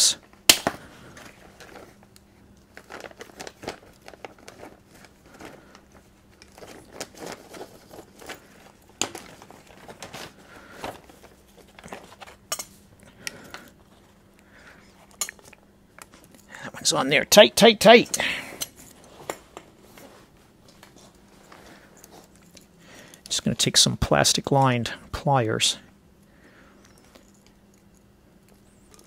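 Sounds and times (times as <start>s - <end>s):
plastic bags crinkling: 0.7s - 12.5s.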